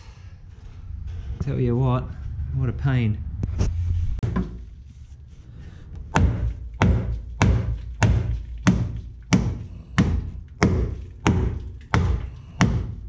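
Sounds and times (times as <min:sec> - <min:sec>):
hammer striking sheet steel: 0:06.1 - 0:13.0.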